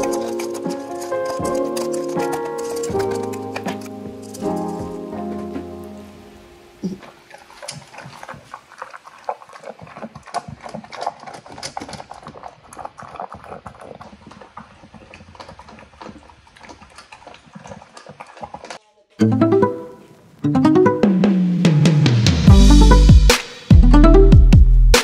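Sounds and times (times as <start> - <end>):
dog eating from metal bowl: 0.0 - 5.7, 6.8 - 18.8.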